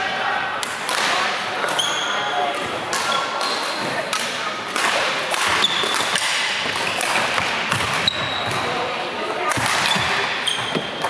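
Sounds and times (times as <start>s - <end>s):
racket hitting shuttlecock: 2.9s - 8.6s, 9.4s - 11.0s
shoes squeaking on wooden floor: 8.0s - 8.6s, 9.9s - 11.0s.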